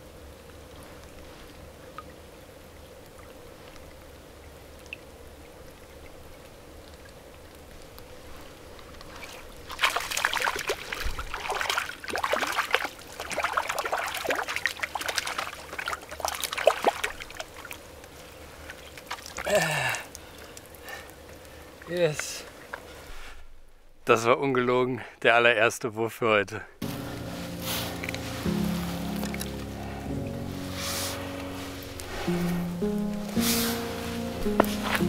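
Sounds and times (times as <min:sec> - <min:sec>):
fish splashing in water: 0:09.0 - 0:20.9.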